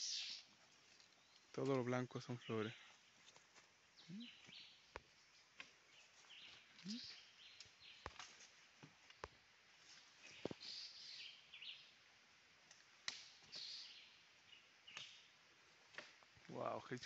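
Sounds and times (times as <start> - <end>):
faint high chirps: 4.0 - 4.8, 6.5 - 8.1.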